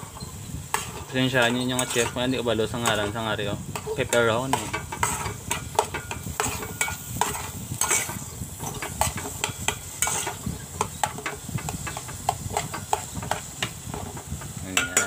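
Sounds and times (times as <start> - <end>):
metal spoon scraping a pot: 0.0 - 15.0
vegetables sizzling: 0.0 - 15.0.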